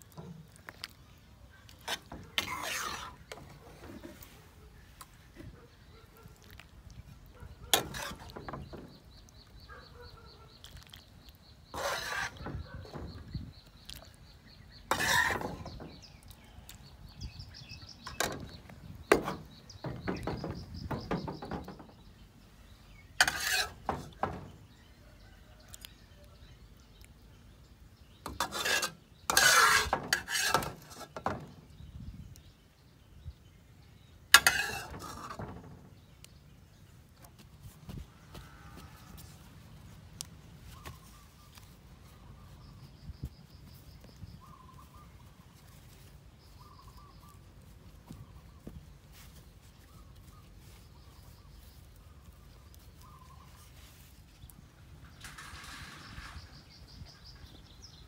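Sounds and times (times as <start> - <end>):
metal spatula scraping a wok: 1.8 - 4.3, 7.7 - 9.0, 11.6 - 13.2, 14.8 - 16.1, 23.2 - 24.6, 28.2 - 31.6, 34.4 - 36.1, 55.1 - 57.6.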